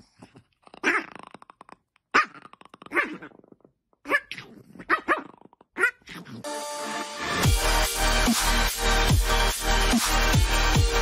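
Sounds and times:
electronic music with steady beat: 0:06.4 - 0:11.0.

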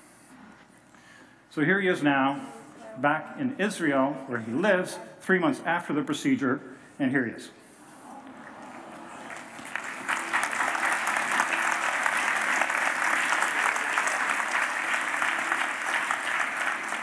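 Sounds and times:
audience applauding: 0:08.2 - 0:17.0.

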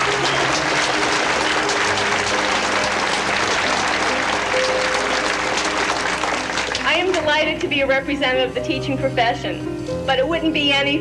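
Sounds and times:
audience clapping: 0:00.0 - 0:07.4
faint music: 0:00.0 - 0:11.0.

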